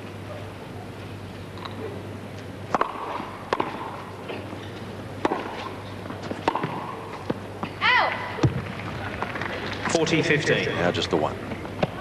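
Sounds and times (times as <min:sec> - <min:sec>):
tennis ball struck by rackets: 0:02.7 - 0:04.5, 0:05.2 - 0:07.4.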